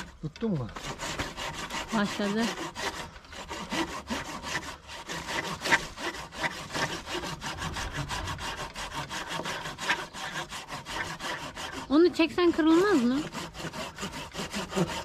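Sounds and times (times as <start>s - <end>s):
hand saw rasping through wood: 0.0s - 15.0s.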